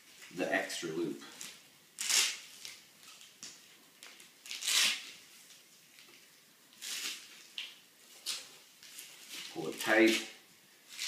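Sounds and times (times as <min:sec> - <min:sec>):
nylon strap scraping swishes: 0:01.4 - 0:02.8, 0:04.5 - 0:05.2.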